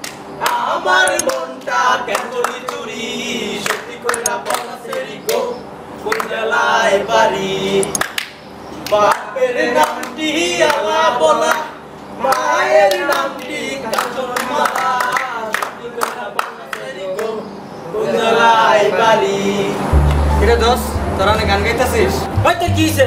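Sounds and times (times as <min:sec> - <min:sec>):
hand claps: 0:00.0 - 0:02.8, 0:07.9 - 0:09.2, 0:12.3 - 0:17.3
young men singing together: 0:00.4 - 0:08.2, 0:08.8 - 0:21.2.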